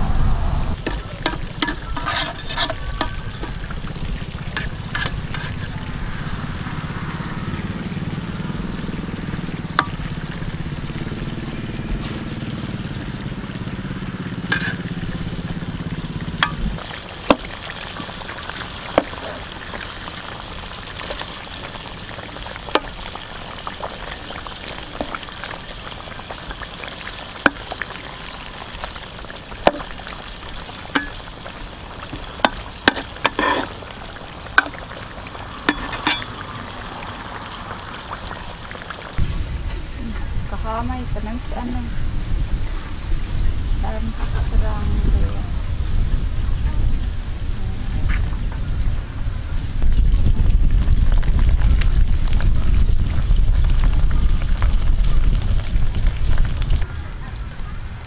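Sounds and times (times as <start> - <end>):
low rumble: 0.0 - 0.9, 3.0 - 16.9, 36.2 - 56.8
chicken deep-frying in oil: 0.4 - 58.0.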